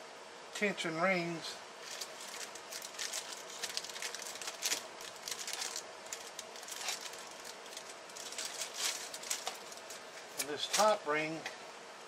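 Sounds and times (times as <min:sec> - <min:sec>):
light crackles: 0:01.8 - 0:11.0
packaging rustling and crinkling: 0:01.8 - 0:11.0.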